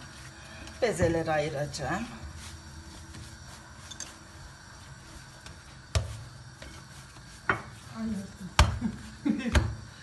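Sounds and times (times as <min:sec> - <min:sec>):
dough rolled by hand: 0:00.0 - 0:10.0
dough thumping on stone: 0:05.4 - 0:07.8, 0:08.5 - 0:09.9.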